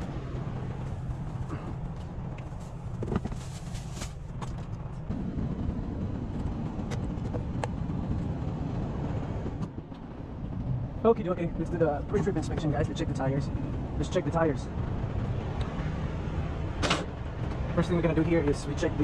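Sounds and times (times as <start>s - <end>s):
diesel truck rumble: 0.0s - 19.0s.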